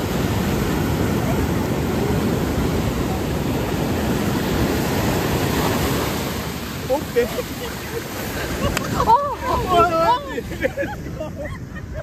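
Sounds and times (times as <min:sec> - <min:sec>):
rushing water: 0:00.0 - 0:12.0
wind buffeting microphone: 0:00.0 - 0:12.0.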